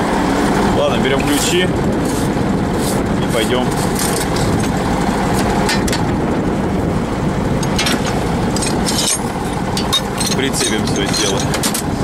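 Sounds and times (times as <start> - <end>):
diesel engine idling: 0.0 - 12.0
wrenches clinking in toolbox: 7.6 - 11.9.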